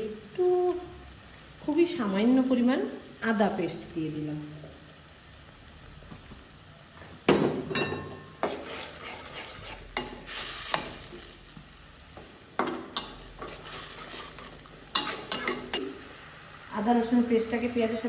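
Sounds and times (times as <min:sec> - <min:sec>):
low sizzle: 0:00.0 - 0:18.0
metal spatula scraping pan: 0:07.7 - 0:11.1, 0:12.6 - 0:15.8.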